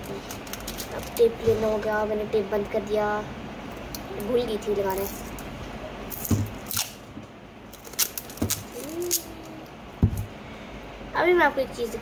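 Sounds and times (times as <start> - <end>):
packing tape peeling off roll: 6.1 - 7.0, 7.7 - 9.6.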